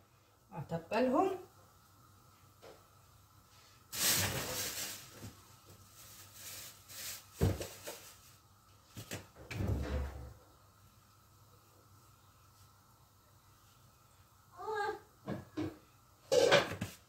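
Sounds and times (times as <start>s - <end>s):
rustling scrape: 3.9s - 8.4s.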